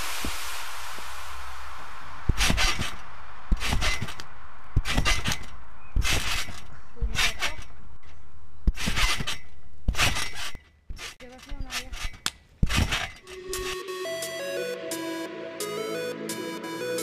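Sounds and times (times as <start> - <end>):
trampoline landings: 2.3 - 13.8.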